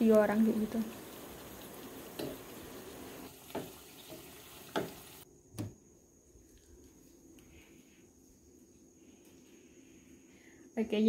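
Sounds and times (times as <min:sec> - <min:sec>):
food deep-frying in oil: 0:00.0 - 0:05.2.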